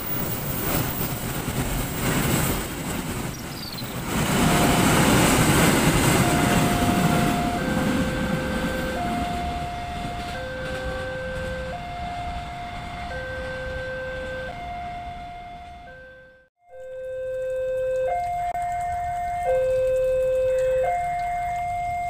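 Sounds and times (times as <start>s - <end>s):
train wagons rumbling on rails: 0.0s - 16.0s
level-crossing two-tone alarm: 4.2s - 22.0s.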